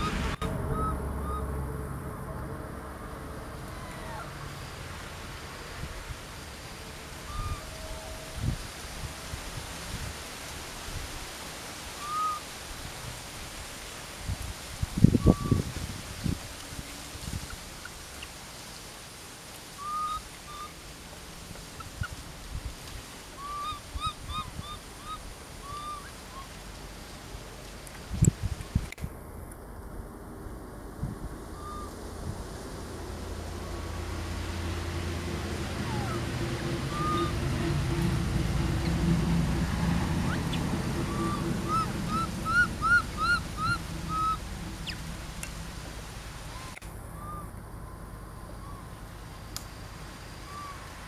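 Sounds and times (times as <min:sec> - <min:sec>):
animal chirp-like calls: 0:00.0 - 0:01.6, 0:03.6 - 0:04.6, 0:19.8 - 0:20.8, 0:23.4 - 0:26.5, 0:31.5 - 0:32.0, 0:35.8 - 0:37.4, 0:40.2 - 0:45.1, 0:46.5 - 0:49.0, 0:50.3 - 0:50.8
infant monkey high-pitched cries: 0:03.6 - 0:04.5, 0:12.0 - 0:12.4, 0:19.8 - 0:20.7, 0:23.4 - 0:26.5, 0:31.6 - 0:32.0, 0:35.8 - 0:37.4, 0:40.2 - 0:45.0, 0:46.6 - 0:49.0
steady low hum: 0:28.4 - 0:51.0.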